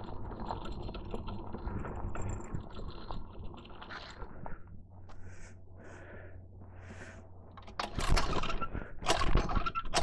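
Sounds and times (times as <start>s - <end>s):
recoil starter rattling pulls: 7.6s - 10.0s.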